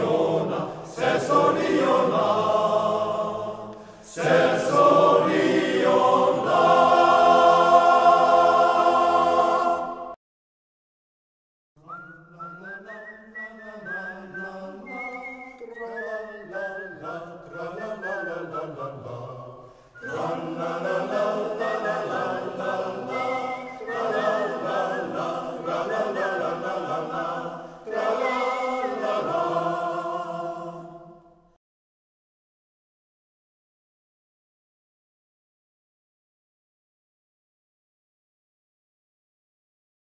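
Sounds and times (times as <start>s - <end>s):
choir singing in parts: 0.0s - 10.2s, 13.8s - 31.4s.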